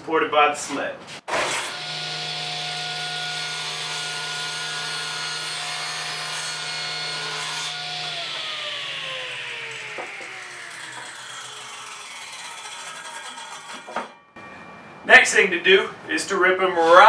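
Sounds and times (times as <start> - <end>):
table saw cutting wood: 1.3 - 14.2
saw blade spinning down: 7.6 - 14.2.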